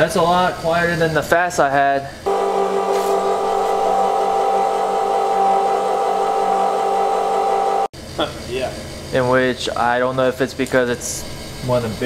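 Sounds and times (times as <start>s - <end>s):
fuel pump whining: 2.3s - 7.9s.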